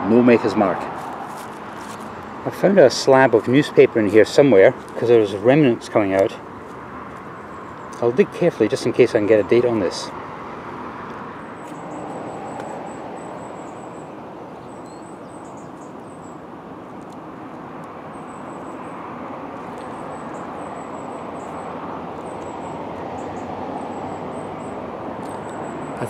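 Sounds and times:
distant road traffic hum: 0.0s - 26.0s
gloved hands rustling soil: 0.9s - 2.2s
small bird calling: 11.4s - 16.5s, 19.6s - 26.0s.

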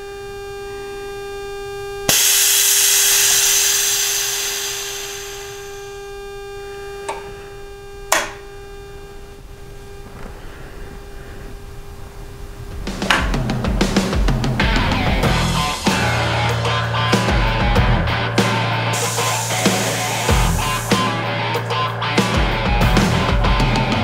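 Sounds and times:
steady whine: 0.0s - 24.0s
air suspension hissing: 2.1s - 6.0s, 9.9s - 16.1s, 18.9s - 21.8s.

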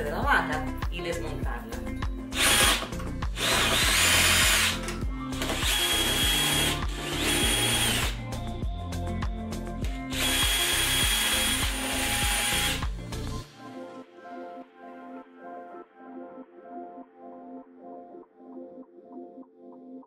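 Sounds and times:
cordless drill motor whine: 2.4s - 8.2s, 10.1s - 12.8s.

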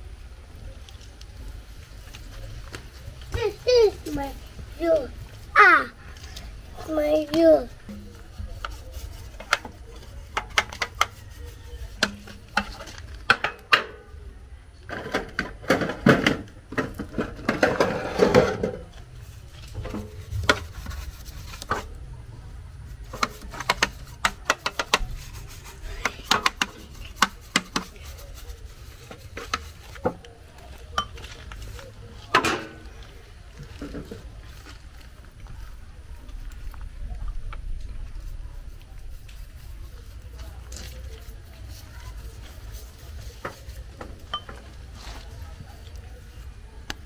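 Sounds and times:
rough rubbing on metal: 6.7s - 13.1s, 17.4s - 22.0s, 22.8s - 30.2s.

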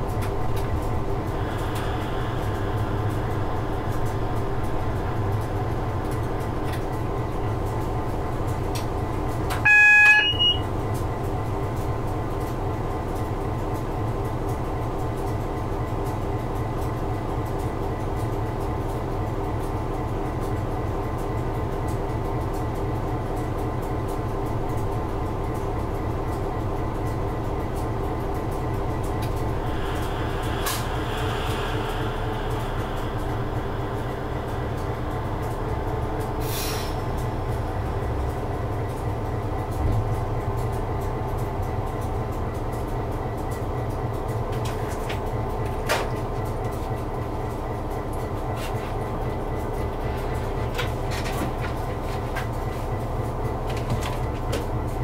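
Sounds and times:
diesel locomotive engine running: 0.0s - 55.0s
two-note warning tone: 9.6s - 10.7s.

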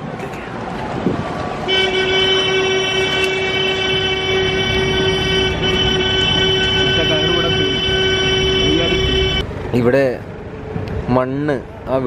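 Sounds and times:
boat horn blast: 1.7s - 9.4s.

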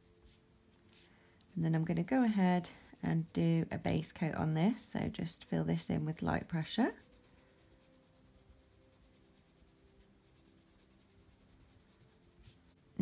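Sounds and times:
coloured pencil scratching paper: 0.0s - 4.9s, 5.6s - 12.8s.

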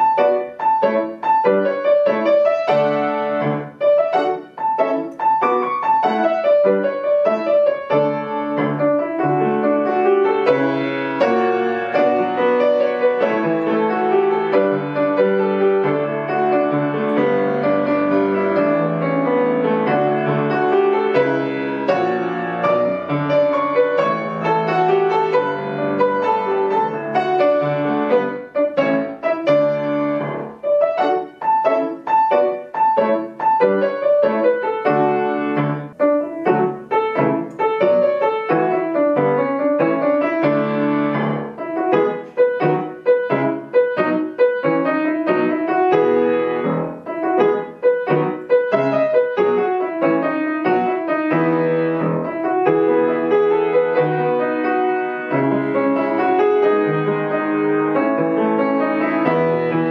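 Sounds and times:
solo grand piano: 0.0s - 59.9s.

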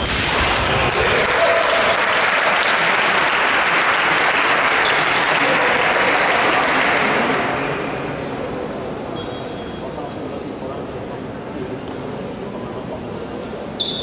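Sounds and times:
spectators applauding: 0.6s - 8.0s.

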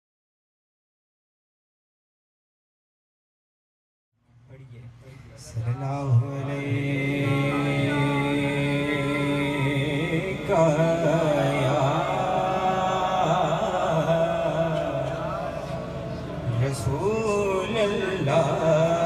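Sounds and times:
man singing into a microphone: 5.4s - 19.0s.

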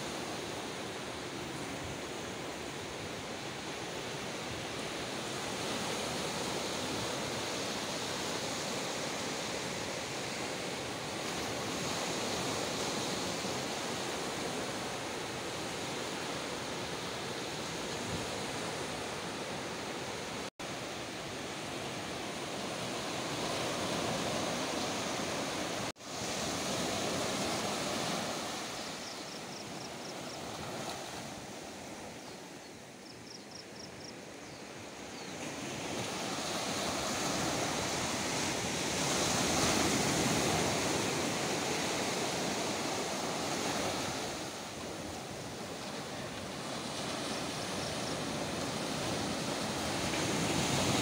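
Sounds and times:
sea surf breaking on shore: 0.0s - 32.2s, 34.8s - 51.0s.

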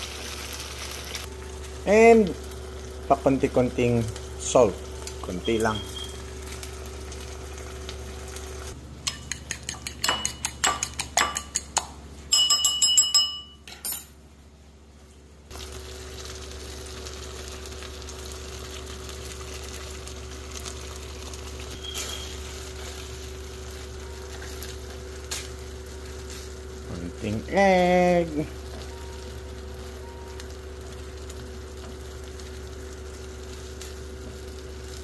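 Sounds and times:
sauce simmering in frying pan: 0.0s - 5.2s, 15.5s - 26.9s
fork clinking beating eggs: 9.0s - 14.0s
utensil clinking against pan: 9.0s - 14.1s.

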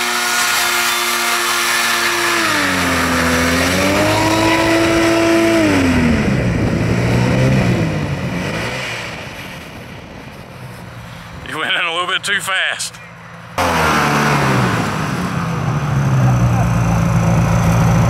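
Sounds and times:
two-stroke engine running hard: 0.0s - 8.0s, 13.6s - 18.0s.

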